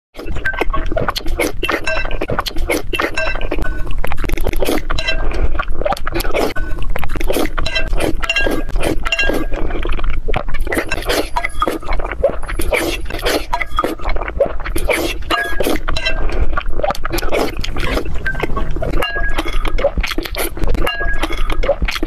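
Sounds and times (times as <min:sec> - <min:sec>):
wet eating sounds: 0:00.2 - 0:22.0
spoon and chopsticks clinking on bowl: 0:03.1 - 0:03.8, 0:04.9 - 0:05.3, 0:07.6 - 0:09.5, 0:15.3 - 0:16.3, 0:18.2 - 0:19.6, 0:20.8 - 0:21.5.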